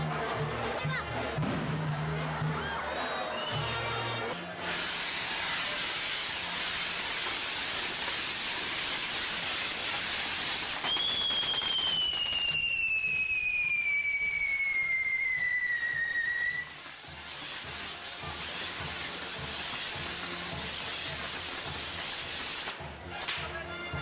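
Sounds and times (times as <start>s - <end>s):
whistling firework: 4.6s - 22.8s
fireworks hissing sparks: 4.6s - 23.4s.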